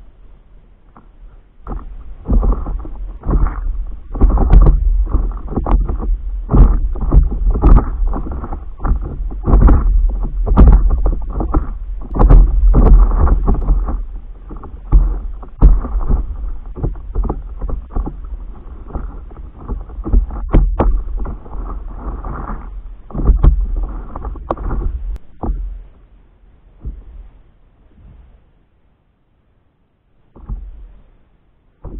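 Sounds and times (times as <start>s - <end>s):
water slapping against board: 0.9s - 26.1s
wind buffeting microphone: 1.6s - 25.9s.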